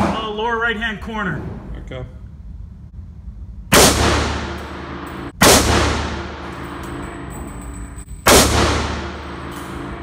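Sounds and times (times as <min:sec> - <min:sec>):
steady low hum: 0:00.0 - 0:10.0
rifle shots ringing indoors: 0:03.7 - 0:10.0.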